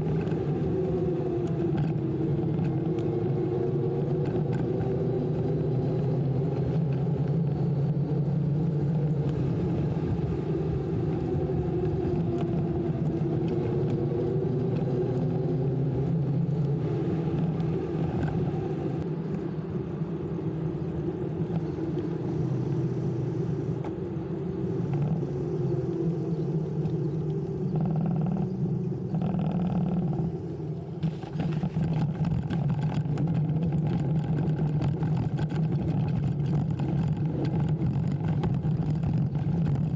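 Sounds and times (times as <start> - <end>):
electric bike motor drone: 20.3 - 33.3.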